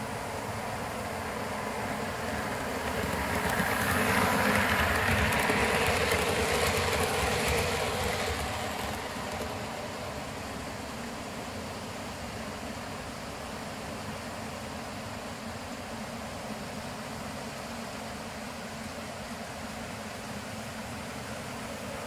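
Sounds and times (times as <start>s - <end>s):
model train rumbling whir: 0.0s - 22.0s
wheels clicking over rail joints: 2.5s - 10.6s.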